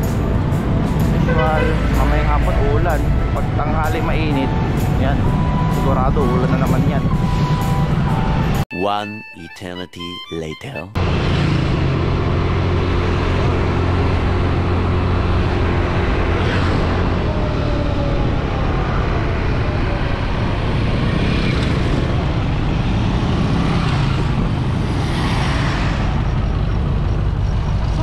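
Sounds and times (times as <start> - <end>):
vehicles passing: 0.0 - 8.6, 11.0 - 28.0
road noise: 0.0 - 8.7, 10.7 - 28.0
wind noise: 13.1 - 28.0.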